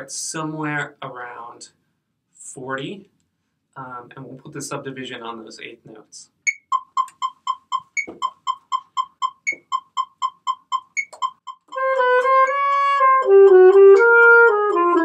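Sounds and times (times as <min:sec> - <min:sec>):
metronome clicking: 0:06.5 - 0:15.0
alto saxophone slow melody: 0:11.7 - 0:15.0.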